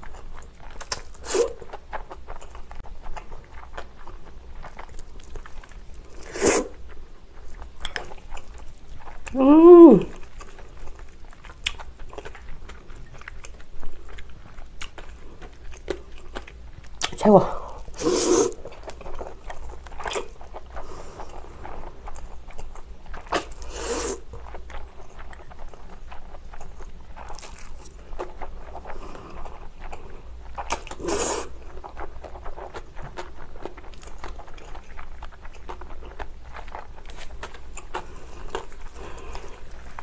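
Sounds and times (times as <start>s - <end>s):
wet chewing and mouth smacks: 0.0s - 9.4s, 10.1s - 40.0s
loud noodle slurps: 1.2s - 1.6s, 6.2s - 6.8s, 17.9s - 18.7s, 23.3s - 24.3s, 30.7s - 31.6s.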